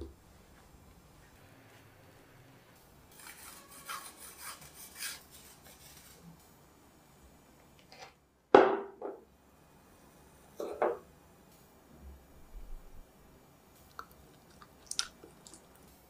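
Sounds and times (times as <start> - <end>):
grater scraping: 3.1 - 6.2.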